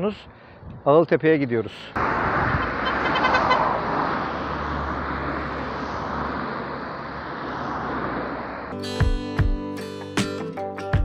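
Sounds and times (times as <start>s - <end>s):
cars driving past: 1.9s - 9.4s.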